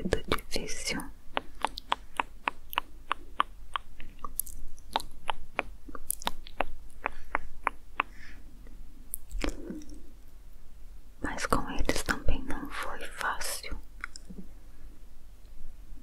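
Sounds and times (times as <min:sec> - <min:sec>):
wet mouth clicks: 0:01.3 - 0:08.2, 0:09.1 - 0:10.0.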